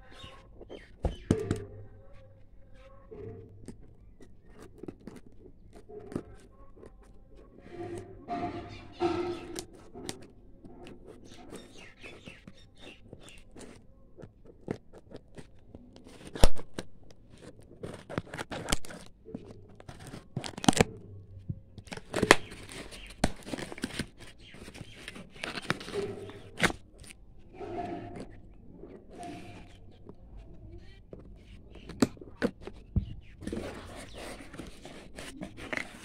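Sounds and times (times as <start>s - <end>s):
cardboard rustling: 3.2s - 36.0s
tape tearing: 14.6s - 21.0s, 21.8s - 28.4s.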